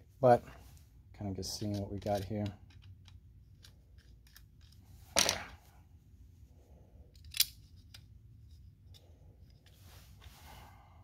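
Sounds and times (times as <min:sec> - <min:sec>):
small parts clicking: 0:01.6 - 0:05.3, 0:07.1 - 0:09.8.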